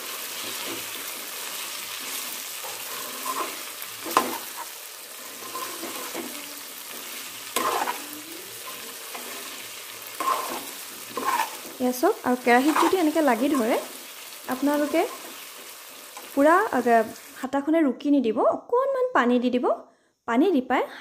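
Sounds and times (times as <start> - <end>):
metal spatula scraping a pan: 0.0 - 16.4
food sizzling in a pan: 0.0 - 17.5.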